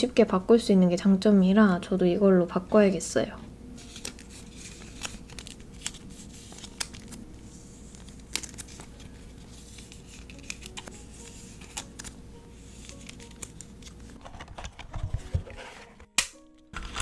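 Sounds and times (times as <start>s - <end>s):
plastic sleeves crinkling: 3.8s - 16.0s.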